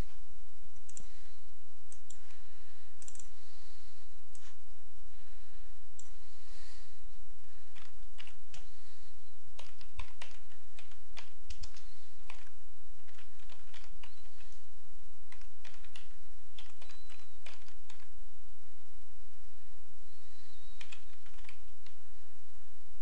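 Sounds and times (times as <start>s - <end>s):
steady low hum: 0.0s - 23.0s
keyboard keys clicking: 7.7s - 8.7s, 9.6s - 14.6s, 15.3s - 18.1s, 20.8s - 22.0s.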